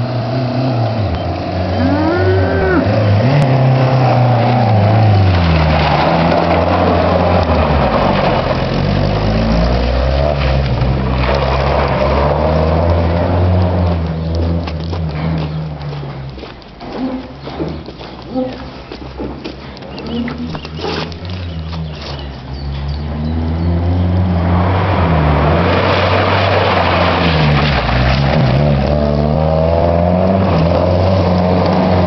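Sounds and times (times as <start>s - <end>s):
car engine revving hard: 23.1s - 32.0s.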